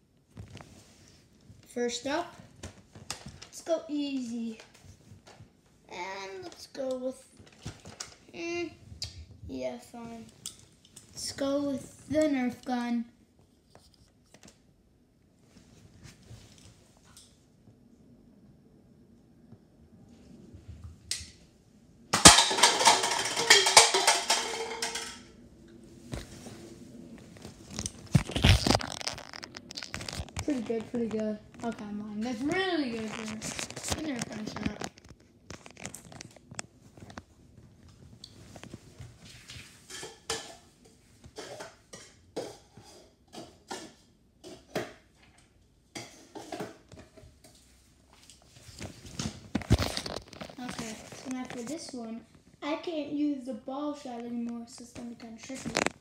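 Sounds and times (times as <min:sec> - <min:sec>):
cups toppling and clattering: 0:22.2 - 0:25.3, 0:27.7 - 0:31.7, 0:39.8 - 0:47.2, 0:55.5 - 0:56.0.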